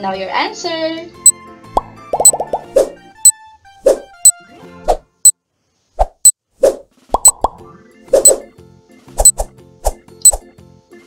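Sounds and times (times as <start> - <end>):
faint light music: 0.0 - 5.9, 7.0 - 11.0
water-drop bloop: 1.8 - 2.7, 7.1 - 7.6.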